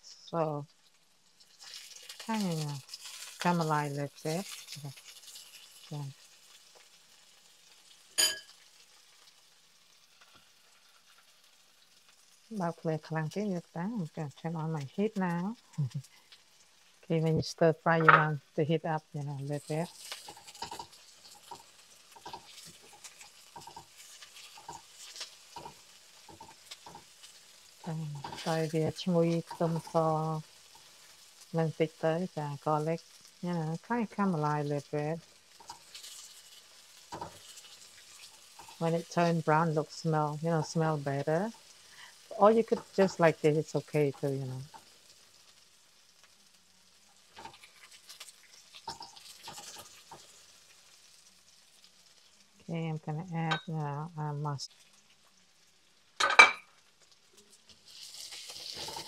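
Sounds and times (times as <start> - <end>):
faint sizzle: 0.0 - 59.0
spatula scraping a frying pan: 19.5 - 31.4, 35.4 - 39.6, 47.1 - 50.8, 57.5 - 59.0.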